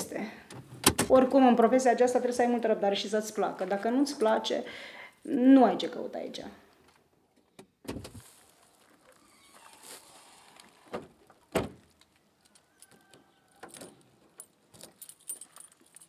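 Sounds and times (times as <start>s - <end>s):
car boot lid slamming: 11.5s - 11.8s
keys jangling: 13.6s - 16.0s.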